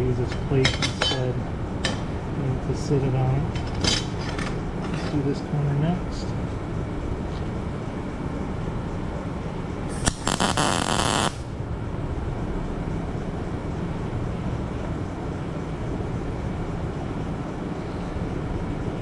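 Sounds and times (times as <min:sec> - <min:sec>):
steady low hum: 0:00.0 - 0:19.0
welding arc crackling: 0:09.9 - 0:11.6.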